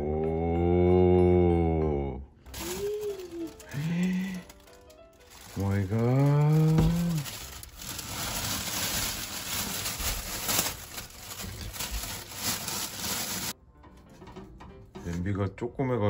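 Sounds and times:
plastic bag crinkling: 0:02.5 - 0:13.6.

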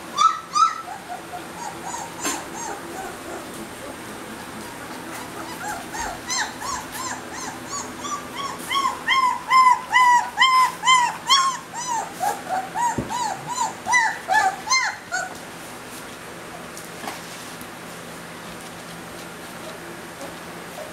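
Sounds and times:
puppy whining: 0:00.0 - 0:15.5.

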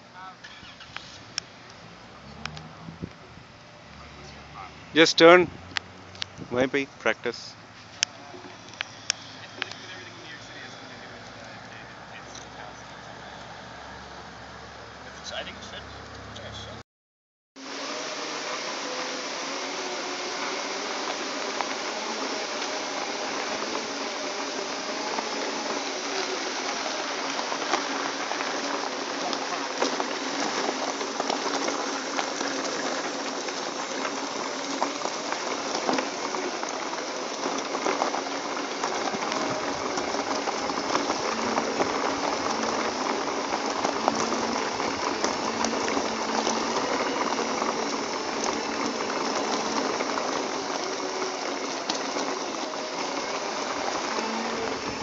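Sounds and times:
tyres crackling on grit: 0:00.0 - 0:14.3, 0:17.6 - 0:55.0.

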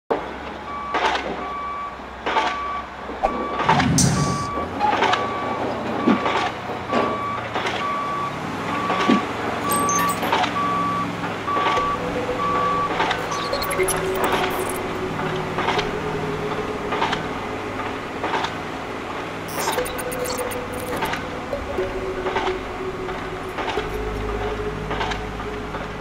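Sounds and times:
truck reversing alarm beeping: 0:00.6 - 0:26.0
low engine rumble: 0:10.4 - 0:19.6, 0:20.3 - 0:26.0.

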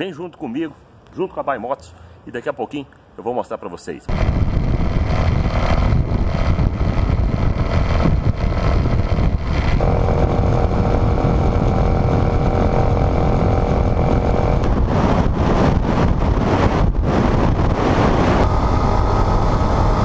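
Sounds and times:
motorcycle engine cruising: 0:04.1 - 0:20.0
wind rush on microphone: 0:04.1 - 0:20.0.

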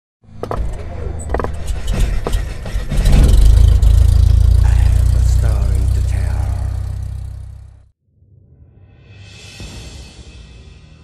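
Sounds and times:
deep bass rumble: 0:01.2 - 0:07.9
low drone: 0:03.0 - 0:07.9.

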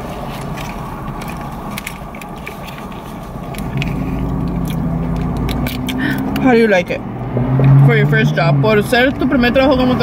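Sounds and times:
paper wrapper crinkling: 0:00.0 - 0:05.6
car cabin hum: 0:00.0 - 0:10.0
deep engine-like hum: 0:00.0 - 0:10.0.

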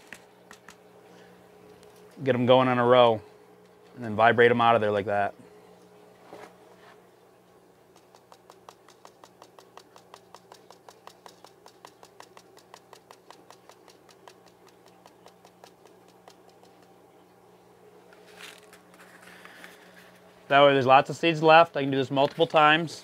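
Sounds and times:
tapping on paper seed packet: 0:00.0 - 0:00.8, 0:07.9 - 0:17.0.

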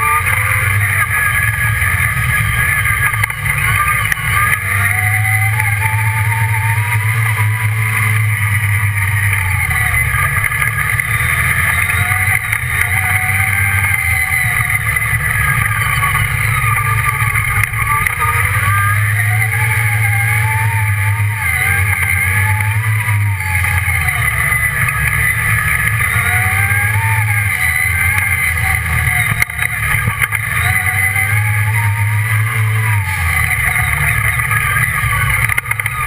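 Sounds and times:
buggy engine running under load: 0:00.0 - 0:36.0.

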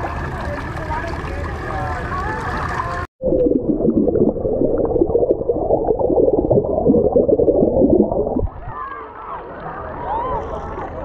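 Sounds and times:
water bubbling underwater: 0:03.2 - 0:08.7.

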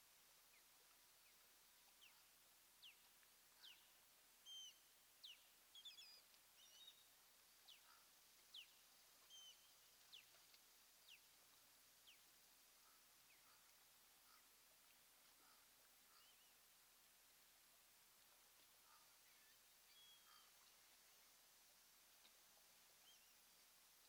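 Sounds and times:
faint steady hiss: 0:00.0 - 0:24.0
faint high bird chirps: 0:03.6 - 0:07.0, 0:07.7 - 0:10.4, 0:16.1 - 0:16.6, 0:18.9 - 0:20.6.

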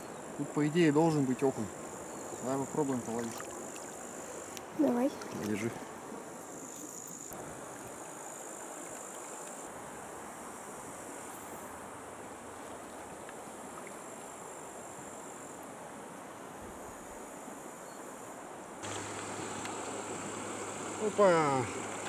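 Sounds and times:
stony river rushing: 0:00.0 - 0:06.5, 0:18.8 - 0:22.0.

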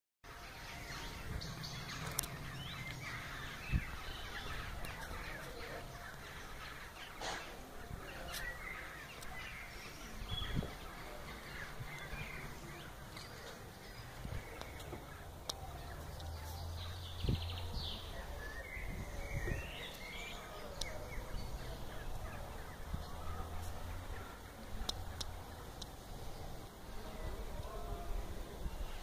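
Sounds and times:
crows calling: 0:01.8 - 0:13.5.

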